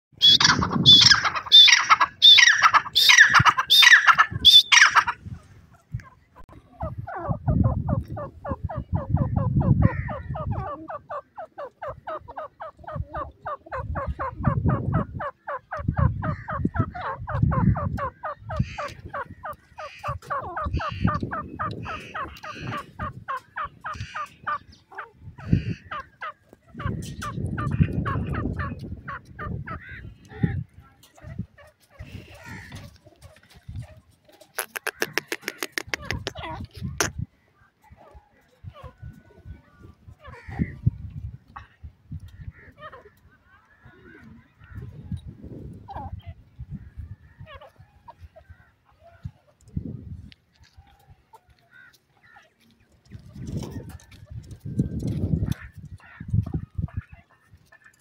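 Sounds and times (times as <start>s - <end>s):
francolin calling: 0.2s - 5.2s.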